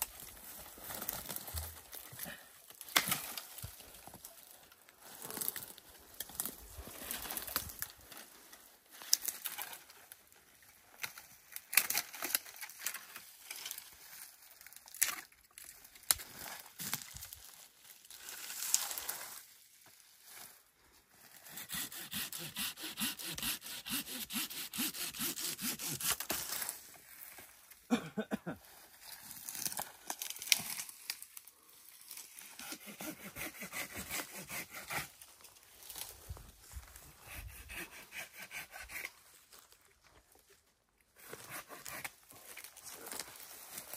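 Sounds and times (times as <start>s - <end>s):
branches cracking and rustling: 0.0s - 20.6s, 26.1s - 27.9s, 28.6s - 32.5s, 35.1s - 37.1s, 39.1s - 43.9s
hand saw cutting branches: 21.3s - 26.8s, 32.3s - 35.3s, 37.0s - 39.2s, 41.2s - 43.3s.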